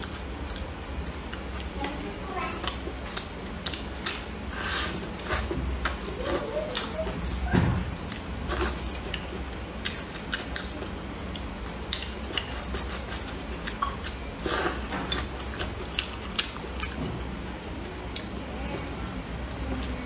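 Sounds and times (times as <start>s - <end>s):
person chewing: 2.6s - 7.4s, 8.0s - 17.0s.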